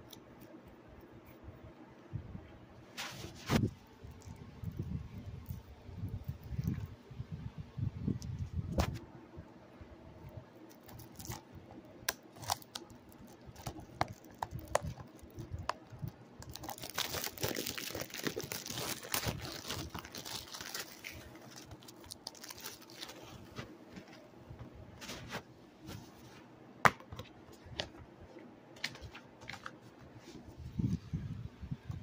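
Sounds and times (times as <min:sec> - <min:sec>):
plastic wrap crinkling and tearing: 0:10.7 - 0:11.4, 0:12.0 - 0:23.6.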